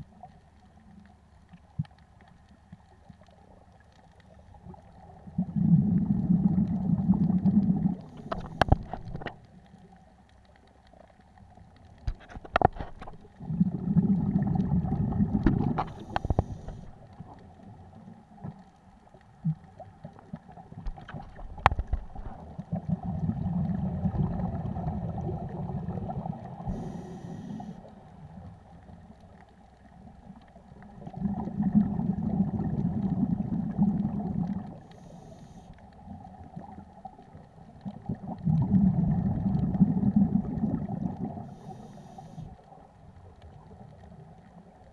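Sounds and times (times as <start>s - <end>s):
underwater exhaled bubbles: 0.0s - 44.9s
regulator hiss: 26.6s - 27.9s, 41.5s - 42.6s.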